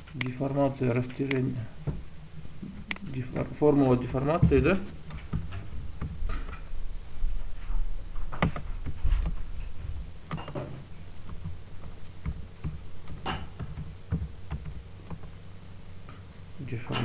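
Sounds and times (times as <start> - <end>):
low steady hum: 0.0 - 17.0
keyboard typing: 8.2 - 15.4.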